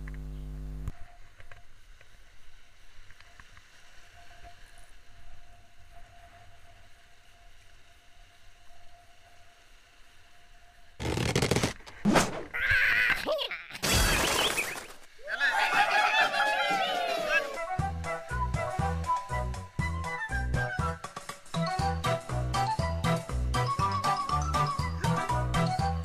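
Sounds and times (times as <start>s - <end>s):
thin steady hum: 0.0s - 11.0s.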